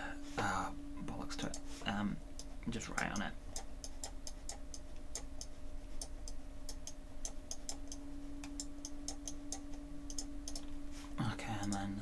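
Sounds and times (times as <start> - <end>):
faint steady hum: 0.0 - 12.0
computer mouse clicking: 2.4 - 10.7, 11.6 - 11.9.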